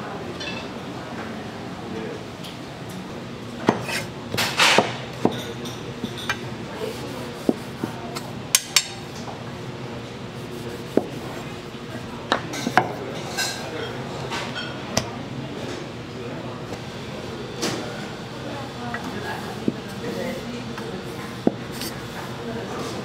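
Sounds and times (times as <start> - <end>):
dishes and utensils clinking: 12.3 - 14.8.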